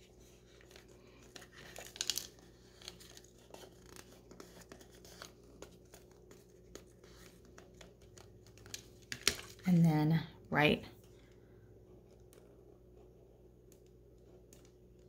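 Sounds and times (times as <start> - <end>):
paper rustling: 0.0 - 9.6.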